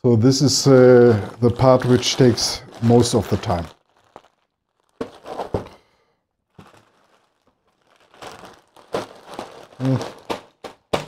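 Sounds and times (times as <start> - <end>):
plastic bags crinkling: 0.3 - 11.0
plastic bricks knocking and clicking: 8.9 - 11.0.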